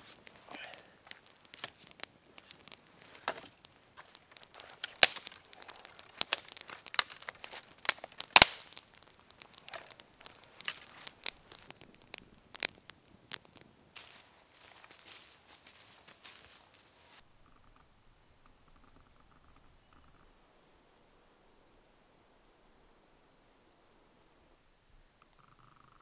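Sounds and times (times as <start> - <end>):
campfire crackling and popping: 0.0 - 20.5.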